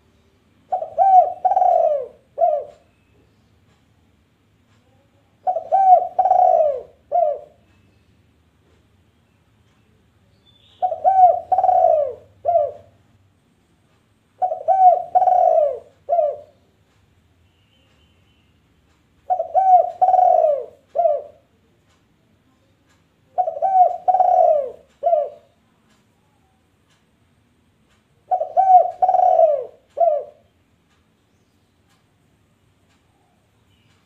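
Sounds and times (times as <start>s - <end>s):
dove cooing: 0.7s - 2.9s, 5.4s - 7.6s, 10.8s - 13.0s, 14.4s - 16.6s, 19.3s - 21.5s, 23.3s - 25.5s, 28.3s - 30.5s.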